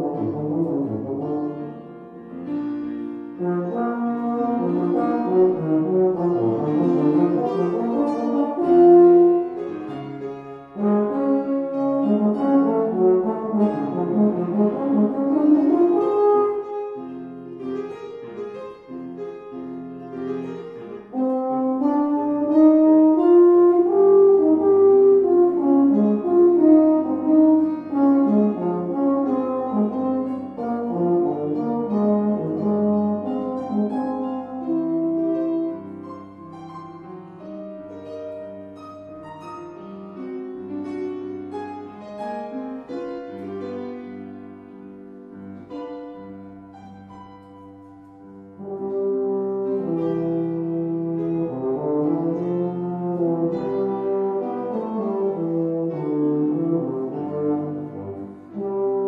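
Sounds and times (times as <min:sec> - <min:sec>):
baritone horn solo: 0:00.0 - 0:02.1, 0:03.4 - 0:09.8, 0:10.7 - 0:17.2, 0:21.1 - 0:35.9, 0:48.6 - 0:59.0
grand piano accompaniment: 0:00.0 - 0:59.0.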